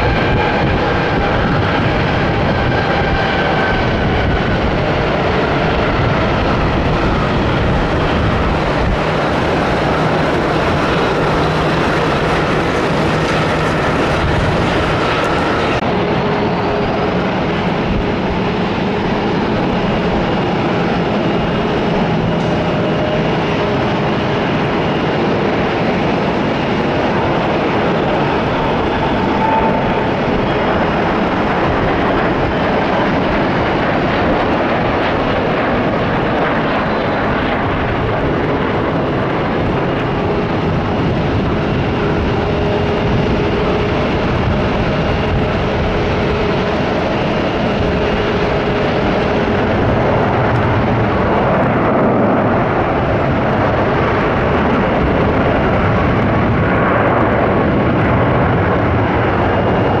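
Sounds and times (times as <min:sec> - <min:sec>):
jet airliner landing: 0:00.0 - 1:00.0.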